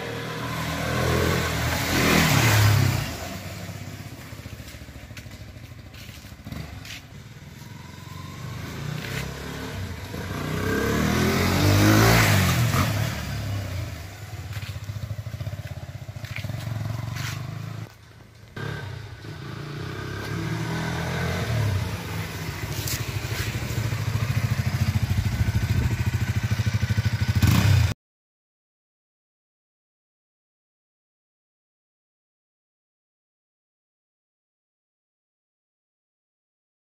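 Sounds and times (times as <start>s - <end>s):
motorcycle engine passing: 0.0s - 28.0s.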